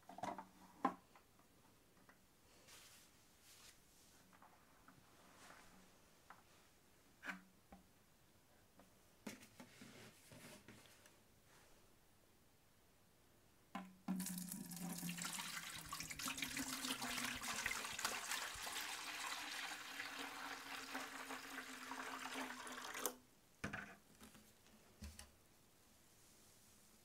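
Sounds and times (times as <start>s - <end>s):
water pouring into plastic tank: 14.1s - 23.2s.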